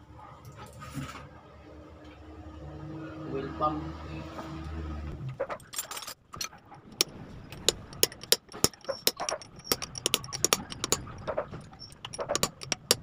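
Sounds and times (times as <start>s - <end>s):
metal tool tapping on engine: 6.9s - 13.0s.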